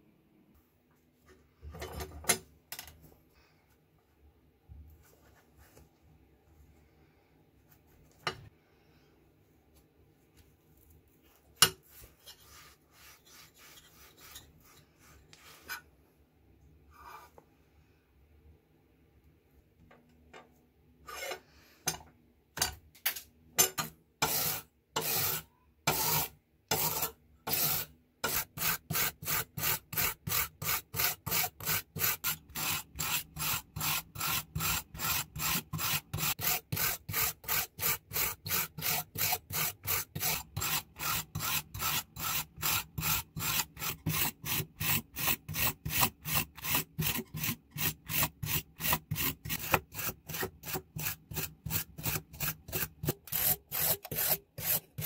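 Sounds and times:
wire brush scrubbing metal: 0:24.2 - 0:55.0.

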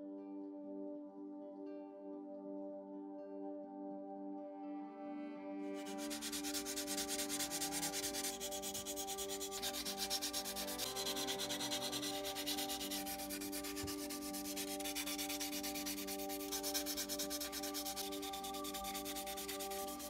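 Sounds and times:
sanding pad rubbing plastic: 0:05.8 - 0:20.0.

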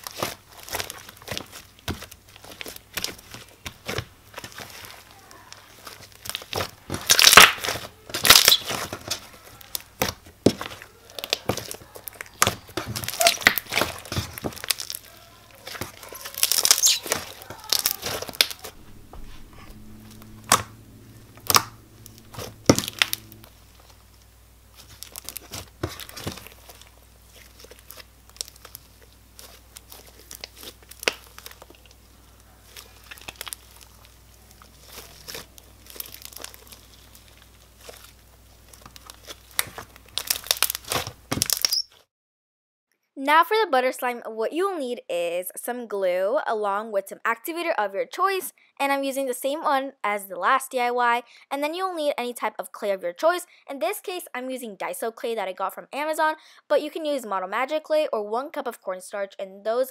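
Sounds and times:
crunchy slime being squeezed: 0:00.0 - 0:19.0, 0:20.1 - 0:24.0, 0:24.7 - 0:42.0.

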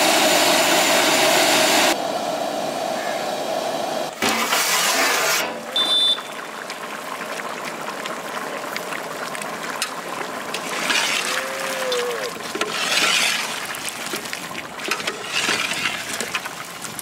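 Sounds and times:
liquid sloshing: 0:06.0 - 0:17.0.

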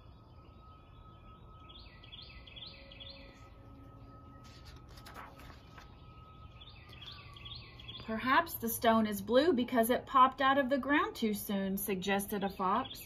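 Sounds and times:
songbird chirping: 0:00.0 - 0:09.8, 0:10.6 - 0:13.0
book page turning: 0:04.4 - 0:06.1.

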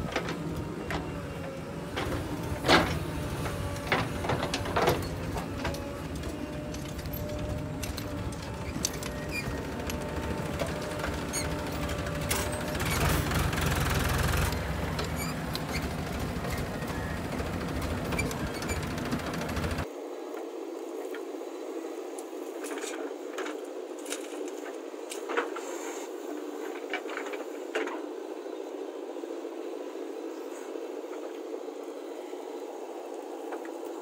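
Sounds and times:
diesel engines running: 0:00.0 - 0:19.9.

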